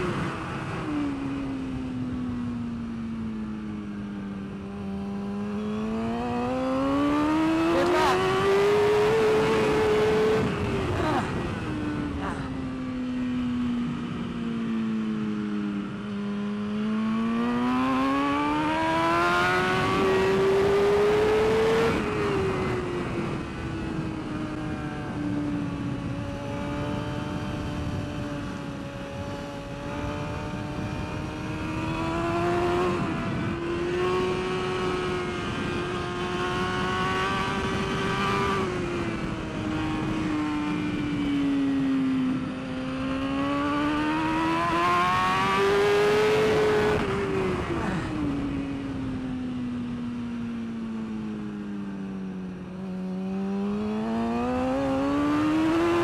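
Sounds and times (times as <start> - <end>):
motorcycle engine revving: 0.0 - 56.0
wind rushing over microphone: 4.4 - 14.8, 17.7 - 50.2.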